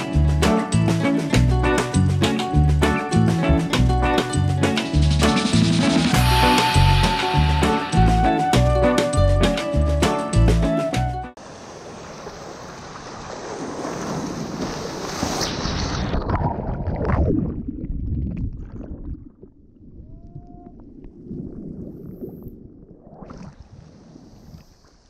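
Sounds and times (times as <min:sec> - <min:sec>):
breaking wave rushing and splashing: 0:11.4 - 0:16.8.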